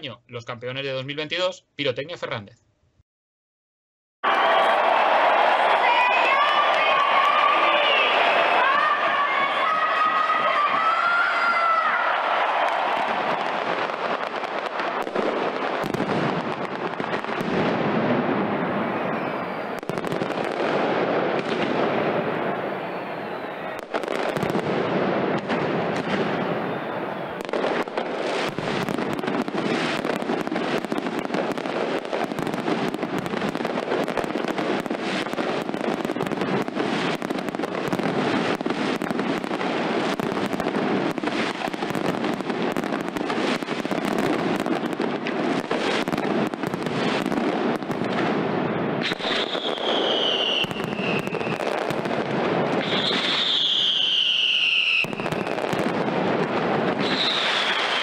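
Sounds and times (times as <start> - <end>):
firecracker bangs: 12.0 - 22.8, 23.6 - 58.0
falling firework whistles: 22.8 - 24.2, 49.0 - 52.0, 52.8 - 55.9, 56.9 - 58.0.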